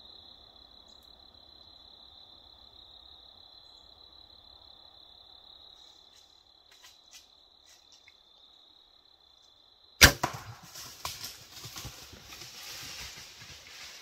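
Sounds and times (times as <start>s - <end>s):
high insect tone: 0.0s - 14.0s
bow release crack: 10.0s - 11.3s
deer crashing through dry leaves: 10.0s - 14.0s.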